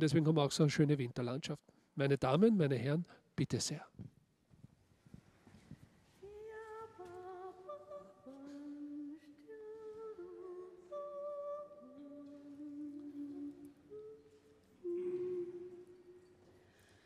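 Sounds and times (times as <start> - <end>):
vocal ensemble humming chords: 7.5 - 16.6.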